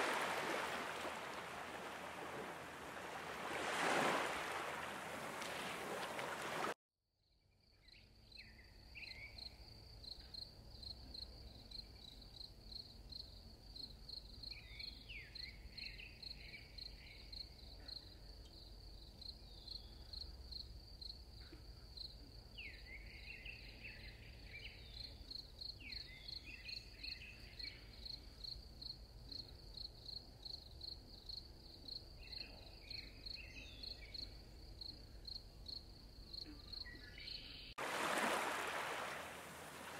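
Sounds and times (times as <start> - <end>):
wind and water hiss: 0.0 - 6.8, 37.8 - 39.9.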